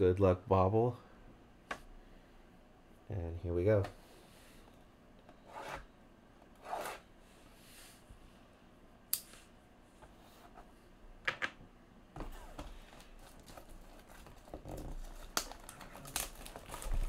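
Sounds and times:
rustling plastic and cardboard: 0:12.2 - 0:17.0.

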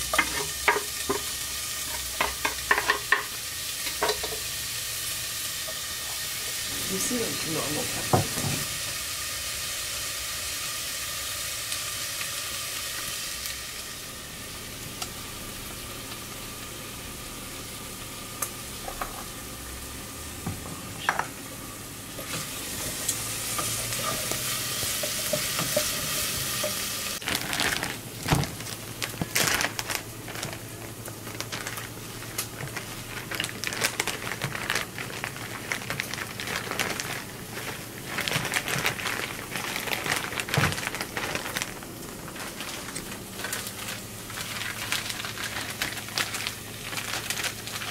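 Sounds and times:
gas burner hissing: 0:00.0 - 0:27.2
plastic zip bag crinkling: 0:27.2 - 0:47.9.

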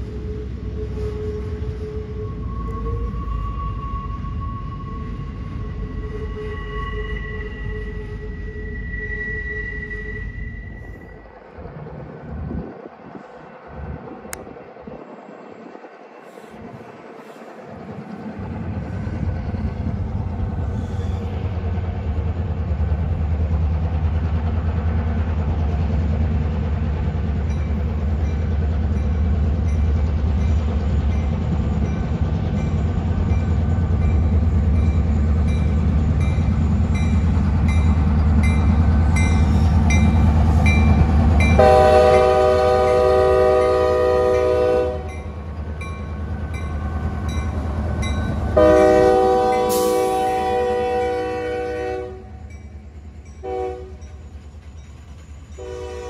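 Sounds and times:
diesel locomotive engine rumble: 0:00.0 - 0:56.0
locomotive air horn blast: 0:41.5 - 0:45.2, 0:48.6 - 0:52.4, 0:53.4 - 0:54.0, 0:55.6 - 0:56.0.

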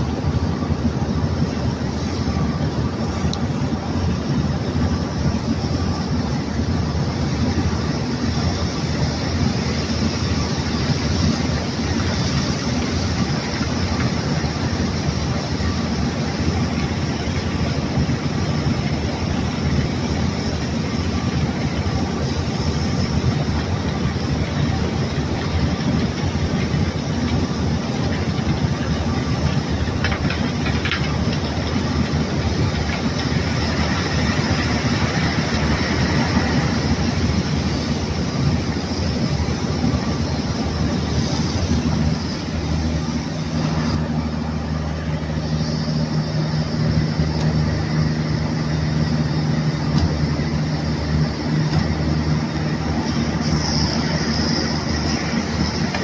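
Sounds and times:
heavy low rumble: 0:00.0 - 0:56.0
high-pressure water jet rushing: 0:31.1 - 0:44.5, 0:46.9 - 0:56.0.

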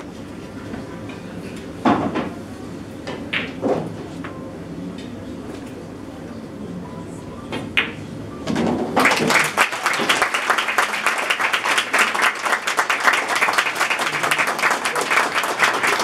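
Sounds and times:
crowd clapping: 0:09.0 - 0:16.0.

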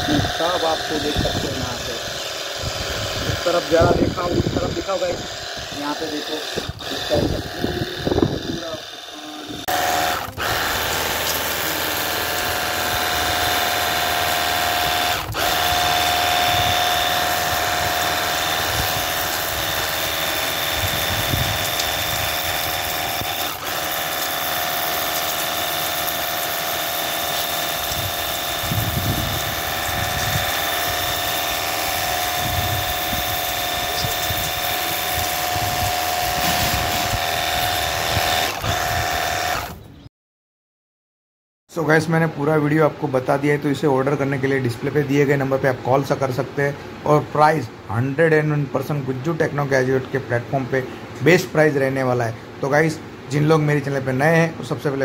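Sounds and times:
water jet hissing on concrete: 0:00.0 - 0:39.8
pressure washer motor whine: 0:00.0 - 0:39.9.

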